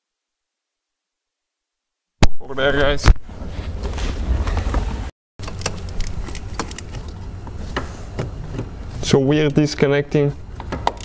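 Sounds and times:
hands rustling wiring: 5.4s - 9.7s.

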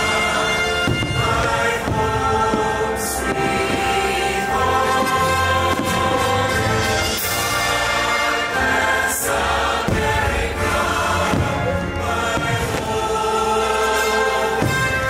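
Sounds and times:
choir singing held chords: 0.0s - 15.0s
musical accompaniment: 0.0s - 15.0s.

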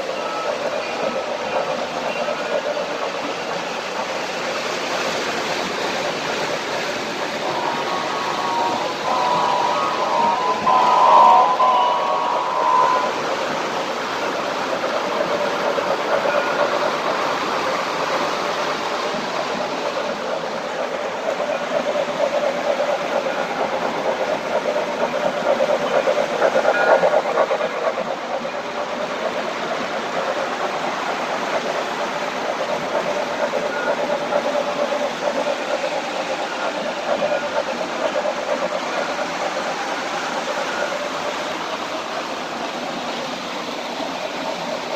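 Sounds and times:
model trains rolling on track: 0.0s - 44.9s
short steady tone: 7.4s - 17.0s.

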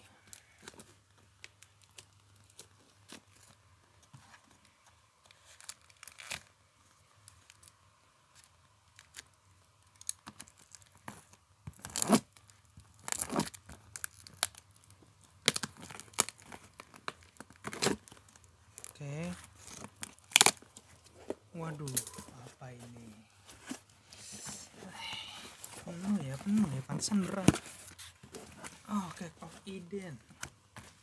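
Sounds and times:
scratching and handling noises: 0.2s - 31.0s
packing tape ripping: 5.4s - 6.5s, 11.7s - 19.0s, 19.6s - 20.8s.

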